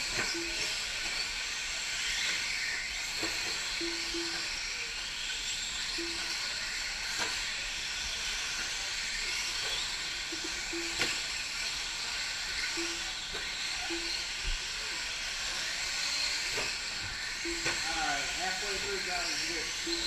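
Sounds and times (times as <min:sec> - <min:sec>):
rc truck motor whine and tyre hiss: 0:00.0 - 0:20.0
short low beeps: 0:00.3 - 0:00.8, 0:03.8 - 0:04.5, 0:06.0 - 0:06.5, 0:10.3 - 0:11.2, 0:12.8 - 0:13.1, 0:13.8 - 0:14.3, 0:17.4 - 0:18.5, 0:19.3 - 0:20.0.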